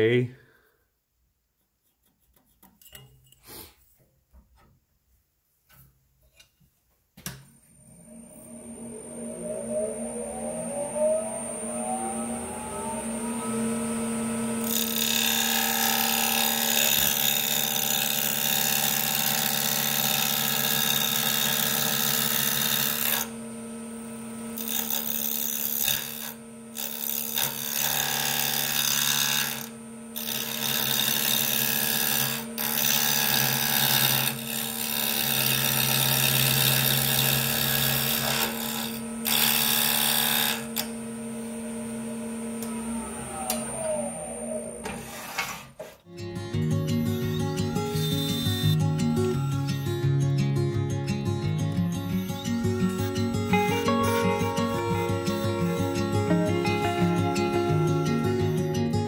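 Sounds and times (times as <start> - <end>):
lathe motor humming and whining: 7.8 - 46.0, 52.1 - 59.0
chisel cutting spinning wood: 8.8 - 46.0.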